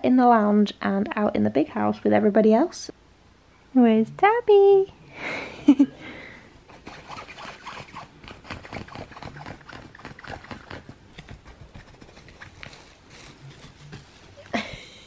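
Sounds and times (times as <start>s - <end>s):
puppy tapping and rustling: 8.2s - 14.6s.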